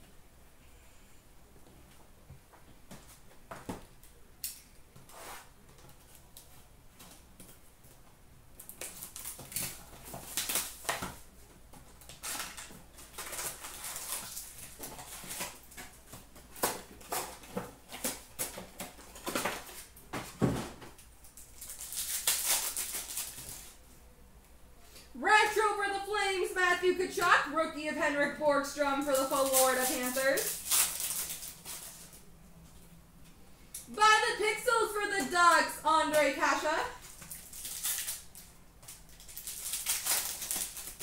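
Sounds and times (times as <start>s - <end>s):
cardboard rustling and scraping: 5.0s - 6.6s
foil wrapper crinkling: 8.6s - 11.3s, 11.9s - 20.0s, 21.2s - 23.8s, 29.0s - 32.3s, 36.0s - 41.0s.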